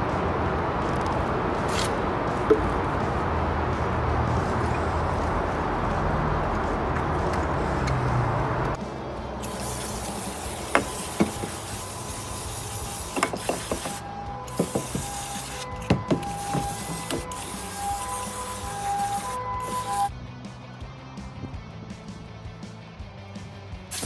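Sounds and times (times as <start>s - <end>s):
steady rushing noise: 0.0s - 21.6s
aerosol can spraying: 9.4s - 20.1s
distant ambulance siren: 10.9s - 20.1s.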